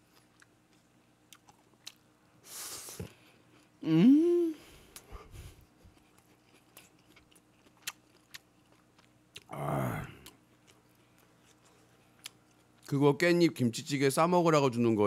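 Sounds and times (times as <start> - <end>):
person chewing food: 0.0 - 2.2, 4.9 - 12.9
man sighing ah of enjoyment: 3.8 - 4.7, 9.5 - 10.2.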